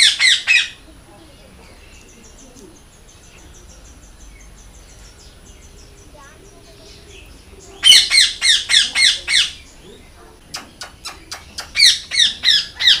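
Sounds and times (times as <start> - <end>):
parakeet squawking: 0.0 - 0.8, 6.2 - 9.7, 10.4 - 13.0.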